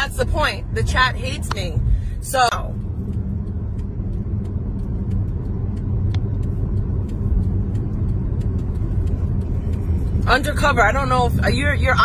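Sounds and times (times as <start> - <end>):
car road rumble inside cabin: 0.0 - 12.0.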